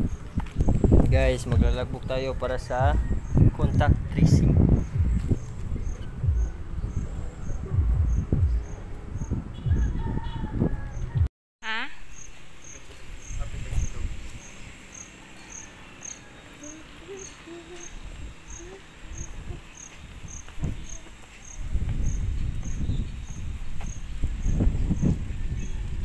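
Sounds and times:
low rumble on microphone: 0.0s - 11.3s, 21.6s - 26.0s
insect chirping: 11.8s - 25.2s.

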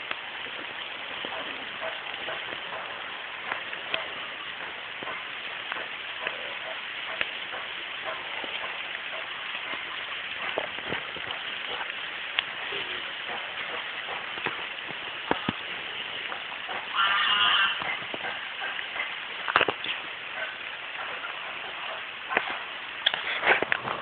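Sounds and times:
rain falling on leaves: 0.0s - 24.0s.

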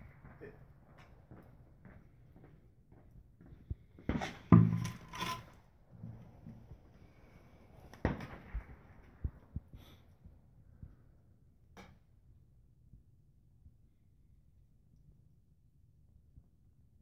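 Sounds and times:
handling knocks and rubbing: 4.1s - 6.8s.

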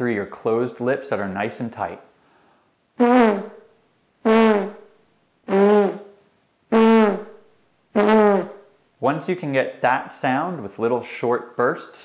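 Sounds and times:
lips buzzing: 3.0s - 3.6s, 4.2s - 4.9s, 5.5s - 7.4s, 8.0s - 8.7s.

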